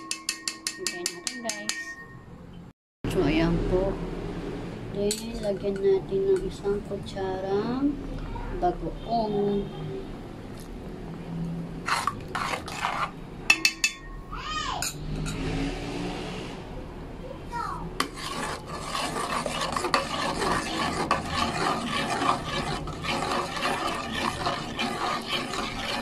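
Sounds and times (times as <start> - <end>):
metal spoon knocking on pot: 0.0 - 2.2, 13.5 - 14.2
spatula stirring thick sauce: 11.9 - 13.2, 18.0 - 26.0.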